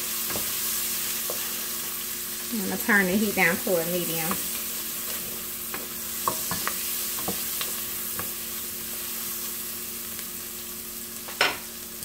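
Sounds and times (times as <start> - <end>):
onions sizzling in a pan: 0.0 - 12.0
wooden spoon scraping a pan: 3.1 - 9.2.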